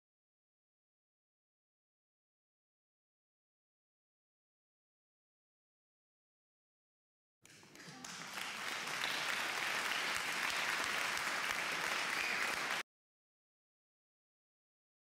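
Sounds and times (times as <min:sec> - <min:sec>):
audience applauding: 0:07.5 - 0:12.8.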